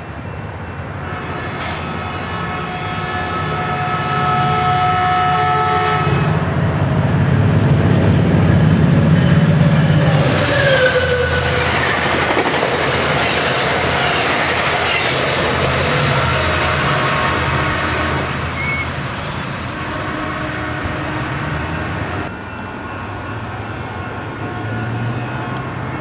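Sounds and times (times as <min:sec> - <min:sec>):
train horn: 0:00.8 - 0:06.6, 0:09.2 - 0:11.9, 0:15.3 - 0:22.4
locomotive engine rumble: 0:06.3 - 0:24.5
clatter of train wheels: 0:07.8 - 0:17.3.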